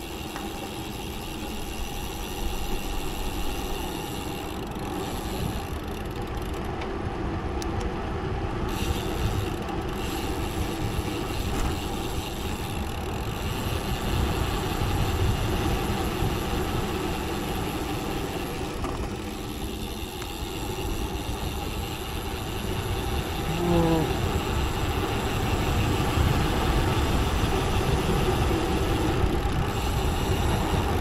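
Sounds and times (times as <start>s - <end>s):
tyres humming: 15.5s - 25.7s
wind buffeting microphone: 21.2s - 31.0s.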